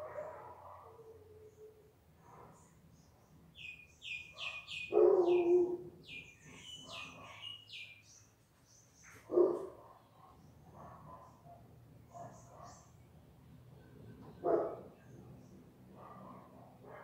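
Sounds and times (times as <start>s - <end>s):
dog barking: 0.0s - 1.1s, 4.4s - 5.8s, 9.3s - 12.9s, 14.4s - 15.0s, 15.9s - 17.0s
songbird chirping: 1.2s - 16.5s.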